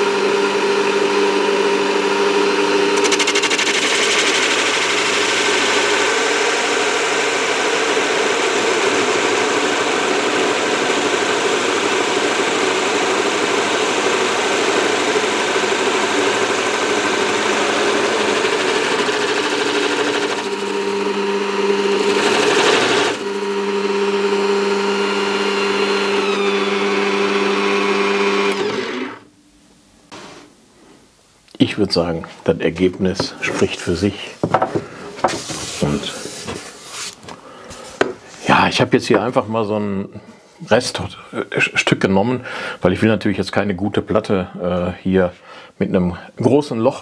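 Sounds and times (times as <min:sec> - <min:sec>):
drill press motor hum: 0:00.0 - 0:29.4
cutter scraping through wood: 0:02.4 - 0:23.8, 0:24.4 - 0:29.3.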